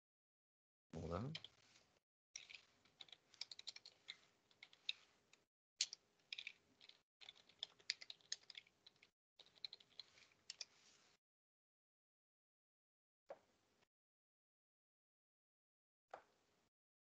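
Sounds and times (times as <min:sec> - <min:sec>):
computer keyboard typing: 0:02.4 - 0:05.1, 0:05.8 - 0:10.7.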